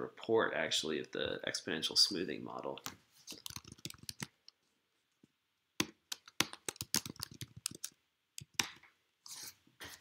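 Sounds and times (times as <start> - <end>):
typing on computer keyboard: 3.4 - 4.3, 6.1 - 8.6.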